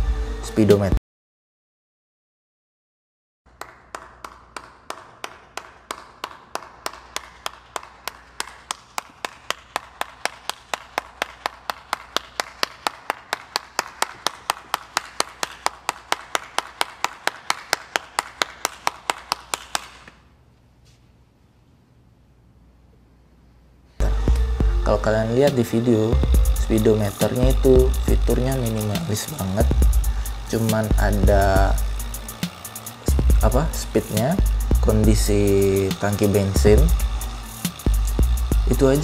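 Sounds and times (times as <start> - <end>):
person clapping: 3.5 - 20.3.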